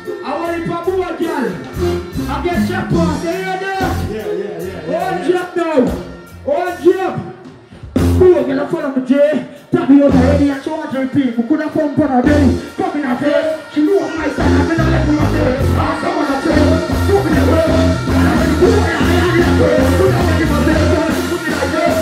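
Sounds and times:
dancehall music over sound system: 0:00.0 - 0:22.0
person deejaying into a microphone: 0:00.0 - 0:22.0
heavy bass beat: 0:01.6 - 0:06.4, 0:07.9 - 0:08.9, 0:09.7 - 0:10.8, 0:11.8 - 0:22.0.

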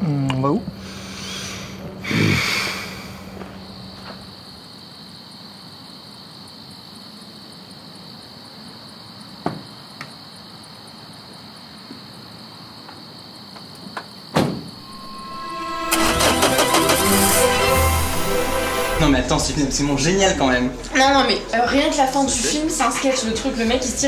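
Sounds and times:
crickets chirring: 0:00.0 - 0:15.8.

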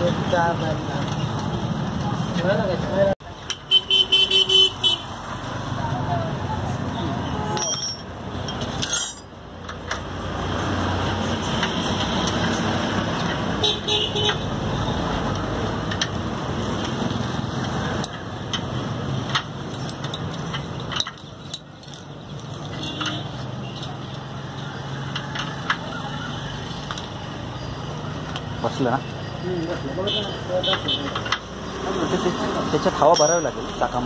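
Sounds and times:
road traffic: 0:00.0 - 0:34.0
vehicle horn: 0:03.7 - 0:05.1.

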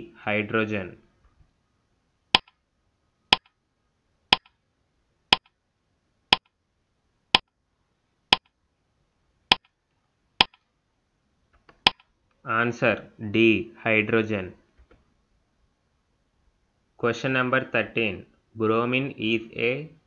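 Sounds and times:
sharp clock-like tick: 0:02.4 - 0:02.6, 0:03.3 - 0:03.6, 0:04.3 - 0:04.6, 0:05.3 - 0:05.5.

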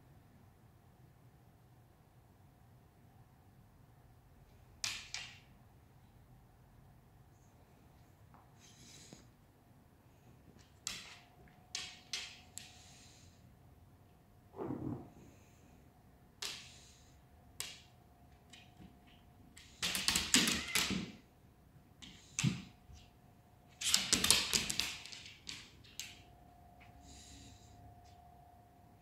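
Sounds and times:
dog claws clattering on hard floor: 0:10.6 - 0:12.7, 0:23.8 - 0:26.2.

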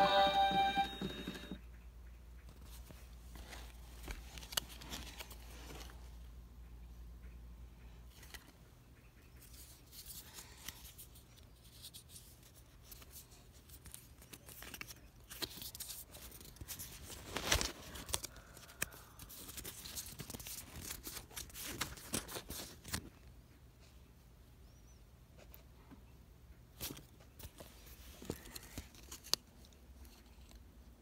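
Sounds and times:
plush toys and cardboard tags handled: 0:02.5 - 0:06.3, 0:08.1 - 0:08.6, 0:09.4 - 0:23.3, 0:26.7 - 0:31.0.

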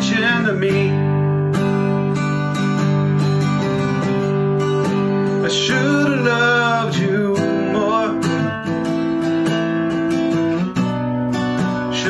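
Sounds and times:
person singing: 0:00.0 - 0:01.2, 0:05.3 - 0:08.9
acoustic guitar strumming: 0:00.0 - 0:12.0.

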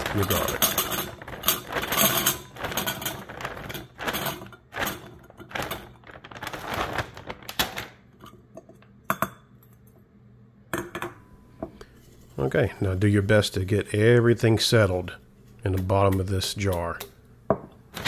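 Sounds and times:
garlic cloves clattering into jar: 0:00.0 - 0:06.5.

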